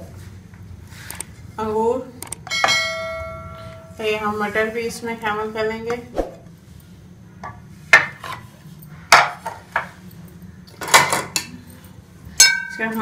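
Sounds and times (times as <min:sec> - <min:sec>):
dishes and utensils clinking: 0:10.7 - 0:13.0.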